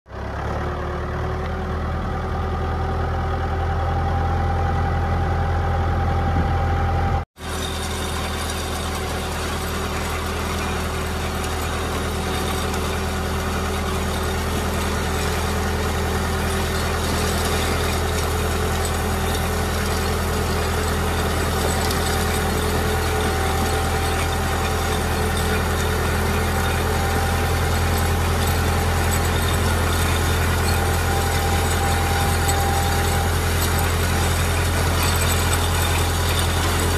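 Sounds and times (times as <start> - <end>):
garden tractor engine running: 0.1 - 36.9
rake teeth dragging through gravel: 7.4 - 36.9.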